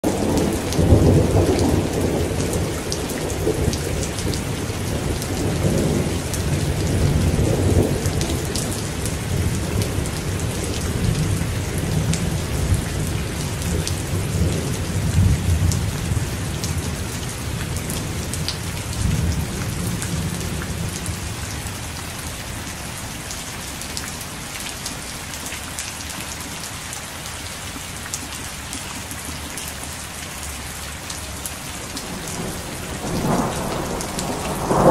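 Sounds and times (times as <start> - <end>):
steady rain: 0.0 - 34.9
thunder rumbling: 0.1 - 21.8, 31.9 - 34.9.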